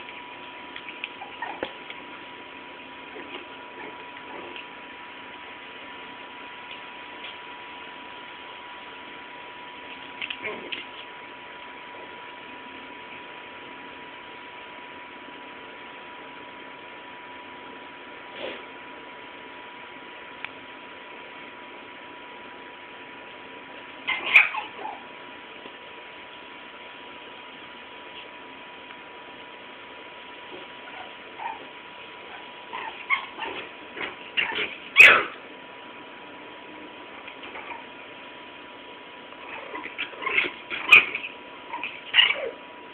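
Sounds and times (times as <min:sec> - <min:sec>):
small dogs yipping and whining: 0:00.8 - 0:01.8, 0:24.0 - 0:25.1, 0:30.8 - 0:33.7, 0:34.3 - 0:35.4, 0:37.4 - 0:37.9, 0:39.4 - 0:42.6.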